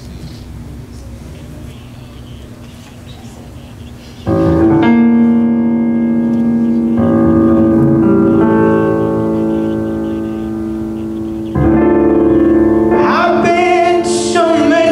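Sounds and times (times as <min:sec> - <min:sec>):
piano chords over sound system: 0:03.7 - 0:14.9.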